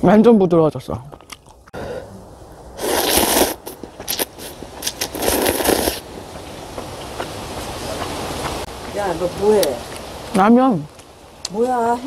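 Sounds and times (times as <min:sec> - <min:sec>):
slurping noodles: 0:02.8 - 0:06.0.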